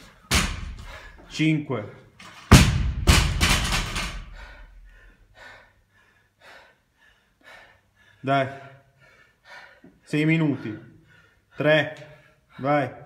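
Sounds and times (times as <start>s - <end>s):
barbell plates rattling: 3.0s - 4.5s.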